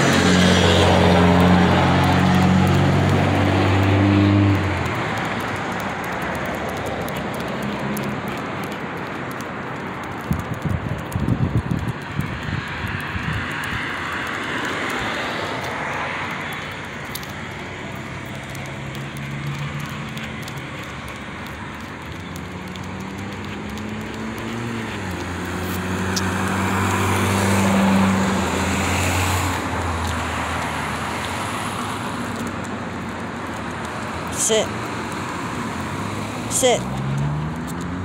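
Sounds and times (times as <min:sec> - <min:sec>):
vehicle driving past: 0:00.0 - 0:05.5, 0:18.0 - 0:32.5, 0:35.6 - 0:38.0
street noise: 0:00.0 - 0:38.0.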